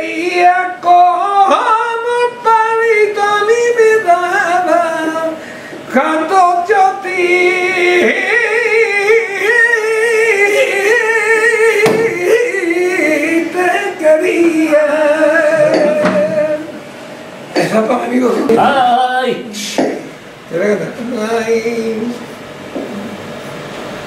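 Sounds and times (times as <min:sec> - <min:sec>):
man singing flamenco unaccompanied: 0:00.0 - 0:16.8.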